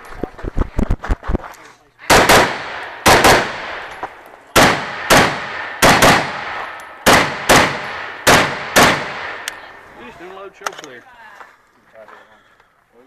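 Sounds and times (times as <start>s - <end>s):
rifle shots with echo: 2.0s - 9.7s.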